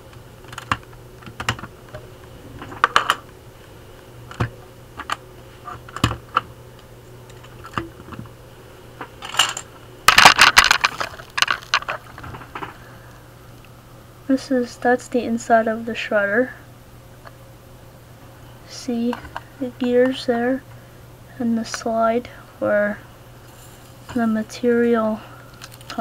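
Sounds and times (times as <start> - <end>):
plastic bricks clicking and clattering: 9.2 - 12.8.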